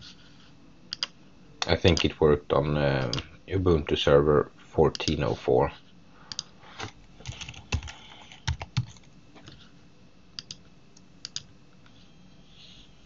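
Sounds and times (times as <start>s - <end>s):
typing on keyboard: 7.2s - 9.1s.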